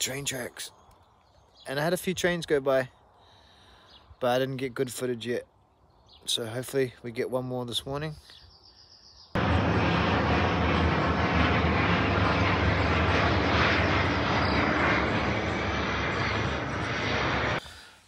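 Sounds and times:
aircraft engine drone: 0:09.4 - 0:18.0.

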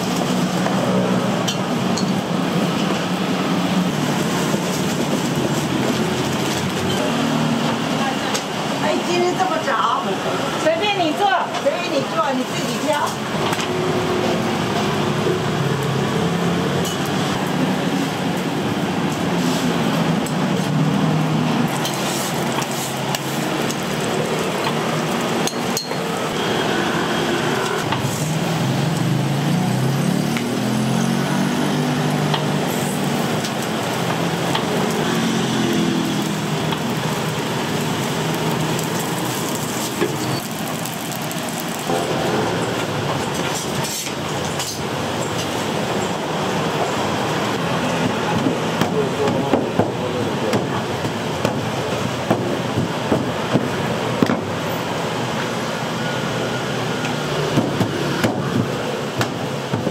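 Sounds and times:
dishes and utensils clinking: 0:25.4 - 0:26.1.

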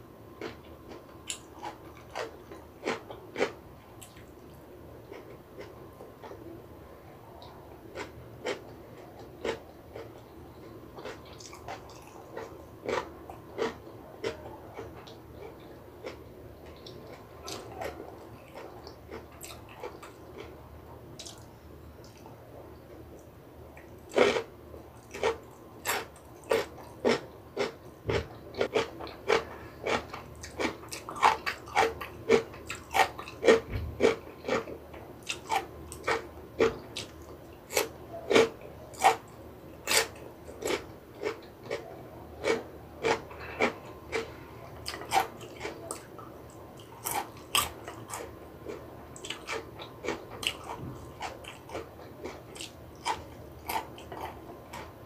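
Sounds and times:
crunchy chewing: 0:00.3 - 0:06.5, 0:07.3 - 0:55.0.

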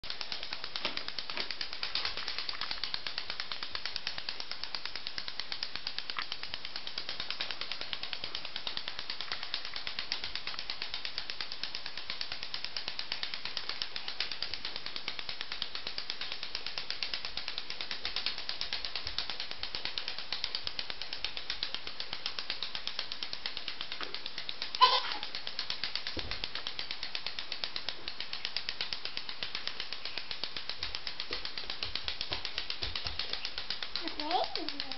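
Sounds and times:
mechanical clicking and rattling: 0:00.0 - 0:34.9
child crying out: 0:24.8 - 0:25.2.

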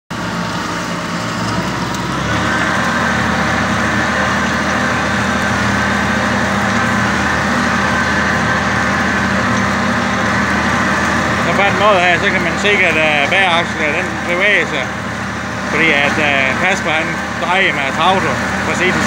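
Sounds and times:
tractor engine under load: 0:00.1 - 0:19.0.

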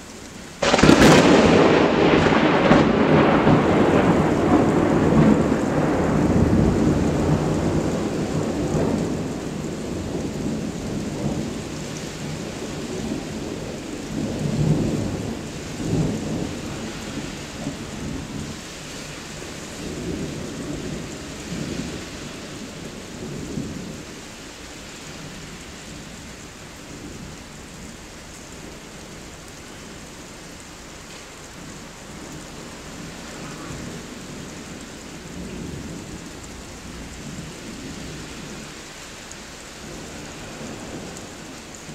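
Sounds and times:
steady rain: 0:00.0 - 0:41.9
thunder rolling: 0:00.6 - 0:18.6.

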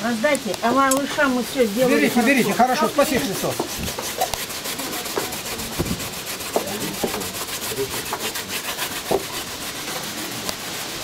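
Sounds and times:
food grated on metal grater: 0:01.0 - 0:11.0.

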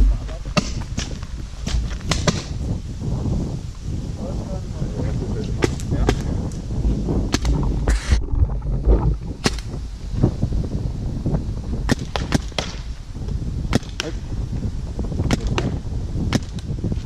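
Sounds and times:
low rumble: 0:00.0 - 0:11.9
paintball markers firing pops: 0:00.6 - 0:02.6, 0:05.6 - 0:06.6, 0:09.4 - 0:09.8, 0:11.9 - 0:12.9, 0:13.7 - 0:14.2, 0:15.2 - 0:16.7.

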